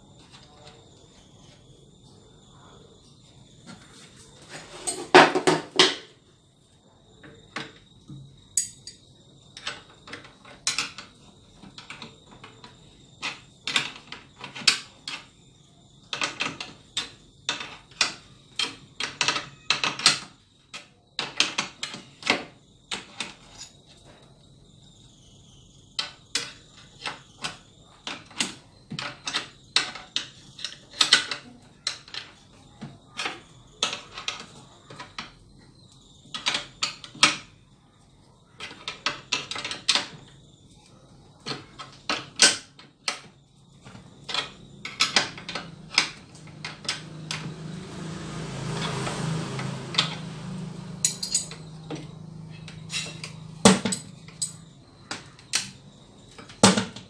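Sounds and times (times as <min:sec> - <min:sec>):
metal wrenches clinking on bolt: 0:51.0 - 0:51.6.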